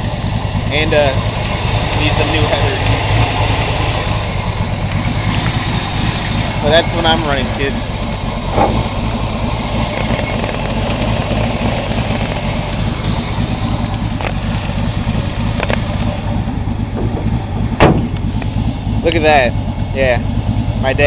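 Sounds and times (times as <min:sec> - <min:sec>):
car engine idling: 0:00.0 - 0:21.0
sharp knock: 0:08.5 - 0:08.9, 0:17.8 - 0:18.2.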